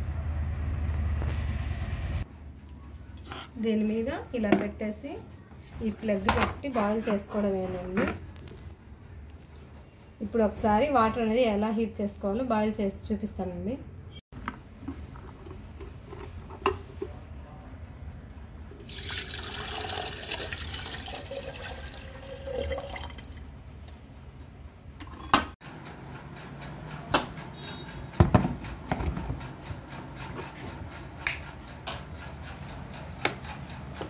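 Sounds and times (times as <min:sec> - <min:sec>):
water pouring into kettle: 0:18.8 - 0:23.4.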